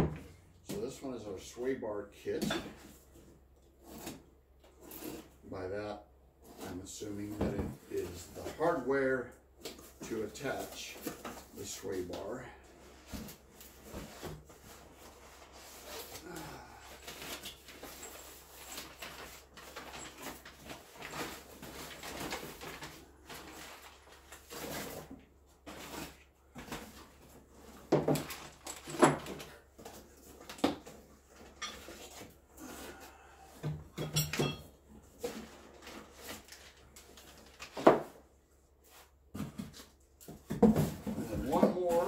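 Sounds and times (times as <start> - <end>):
knocks and clunks of boxes: 7.2 - 8.6, 12.9 - 38.3, 39.2 - 42.0
rustling of packing wrap: 13.0 - 26.2.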